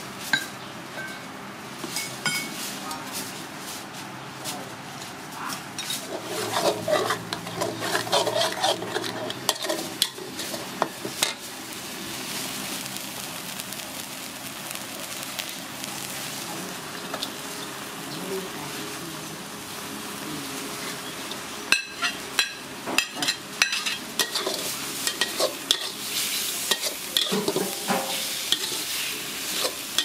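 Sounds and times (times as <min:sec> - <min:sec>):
metal spatula scraping wok: 0:05.8 - 0:11.5, 0:21.7 - 0:30.0
paste sizzling in hot oil: 0:06.0 - 0:30.0.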